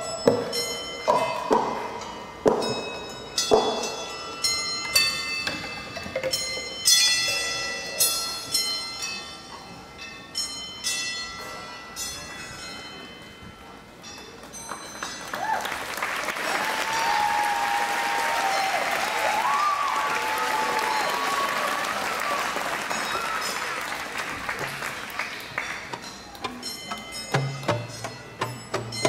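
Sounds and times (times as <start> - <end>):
audience applause and cheers: 15.2 - 25.9
struck metal percussion ringing: 25.8 - 29.0.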